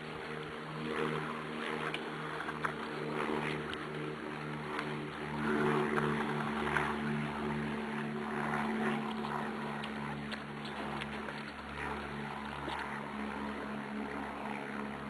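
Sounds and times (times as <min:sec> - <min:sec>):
faint clicks and rustles: 0:00.0 - 0:15.0
pulsing motor hum: 0:00.0 - 0:15.0.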